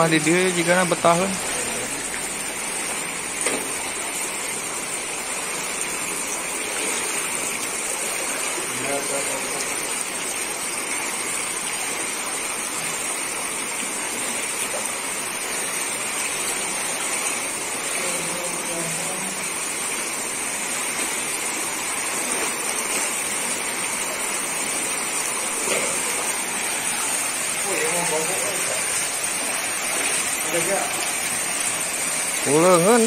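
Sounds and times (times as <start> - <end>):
river water rushing: 9.4 - 33.0.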